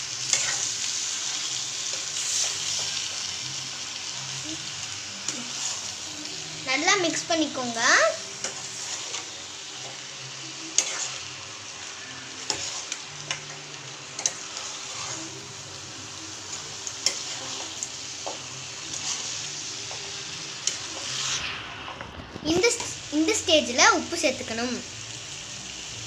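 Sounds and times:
chicken sizzling in a pan: 0:00.0 - 0:26.0
metal ladle scraping a pan: 0:00.3 - 0:00.7, 0:10.7 - 0:11.3, 0:11.9 - 0:15.4, 0:16.5 - 0:22.1.

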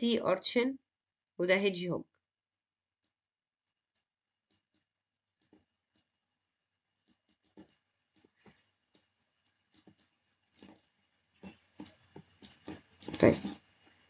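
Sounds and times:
pen clicks and taps: 0:03.0 - 0:06.2, 0:07.0 - 0:14.0.

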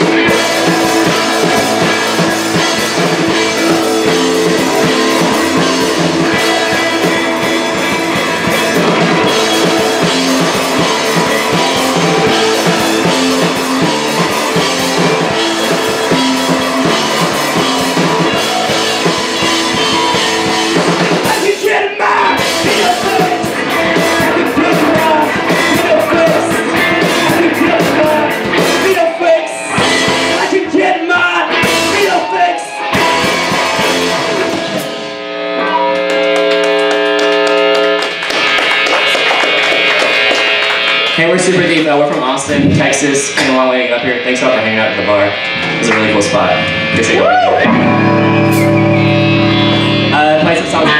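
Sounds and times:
bass guitar: 0:00.0 - 0:50.9
distorted electric guitars: 0:00.0 - 0:50.9
drum kit: 0:00.0 - 0:50.9.

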